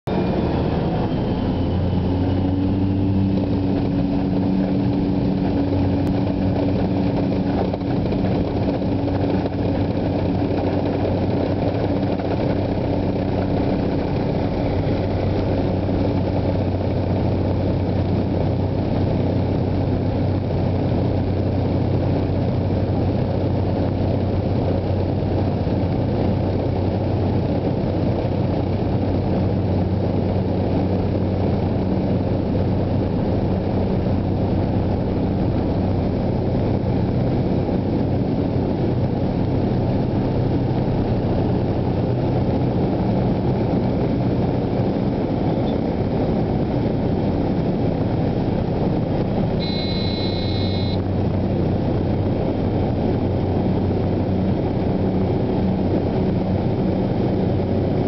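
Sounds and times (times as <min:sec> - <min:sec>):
propeller plane engine drone: 0:00.0 - 0:58.0.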